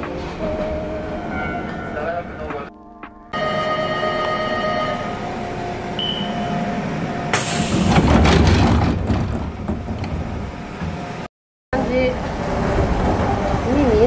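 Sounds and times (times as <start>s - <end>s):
train electrical hum: 3.4s - 8.1s
sliding doors closing rumble: 5.3s - 11.3s, 12.1s - 14.0s
short beep: 6.0s - 6.5s.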